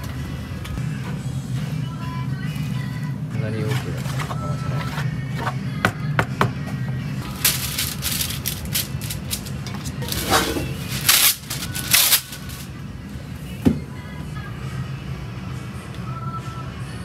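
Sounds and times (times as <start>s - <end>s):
background music: 0.0s - 17.0s
paper towel tearing: 7.2s - 12.7s.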